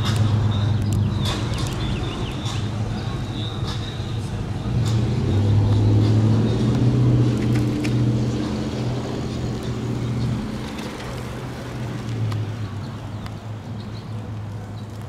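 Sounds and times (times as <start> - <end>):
vehicle engine hum: 0.0 - 15.0.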